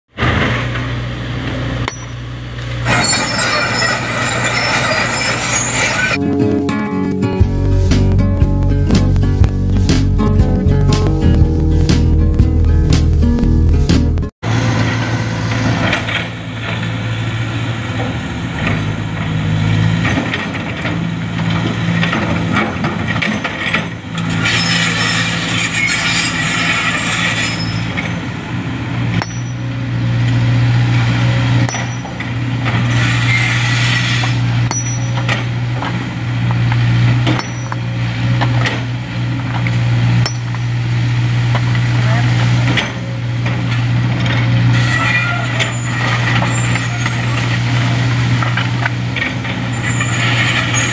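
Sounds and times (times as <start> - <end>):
excavator diesel engine droning: 0.1 - 50.9
rocks knocking and clinking: 1.9 - 2.2, 29.2 - 29.6, 31.6 - 32.3, 34.6 - 38.9, 39.5 - 40.7.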